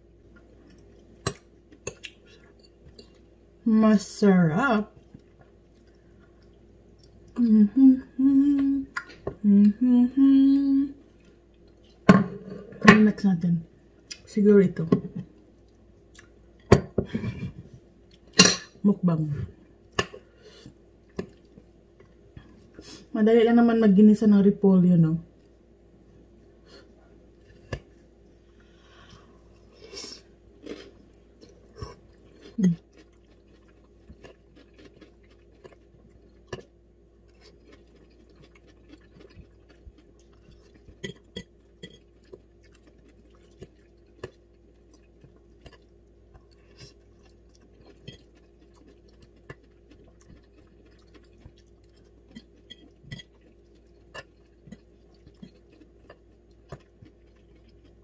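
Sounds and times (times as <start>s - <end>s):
faint steady hum: 0.0s - 58.0s
chewing cabbage: 29.4s - 58.0s.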